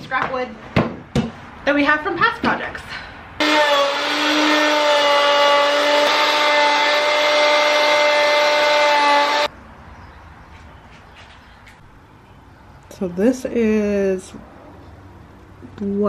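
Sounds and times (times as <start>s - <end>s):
router whining: 3.4s - 9.5s
wood being cut rasping: 3.4s - 9.5s.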